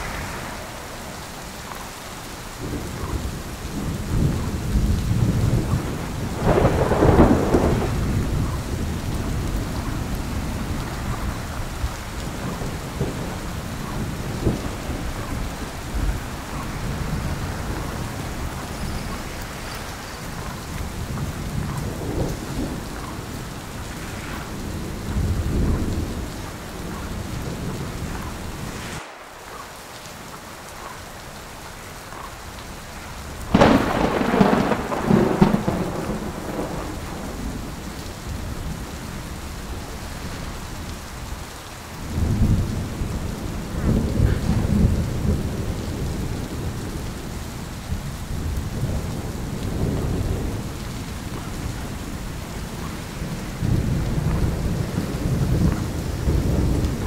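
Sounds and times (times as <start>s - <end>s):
low rumbling surges: 0.0s - 4.4s, 5.1s - 31.6s
snowstorm rushing noise: 0.0s - 31.9s.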